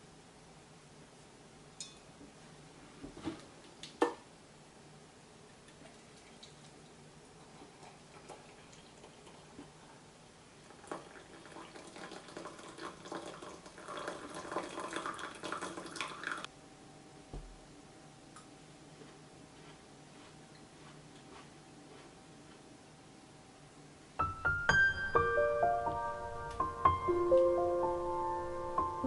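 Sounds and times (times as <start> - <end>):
water pouring into glass: 10.6 - 16.5.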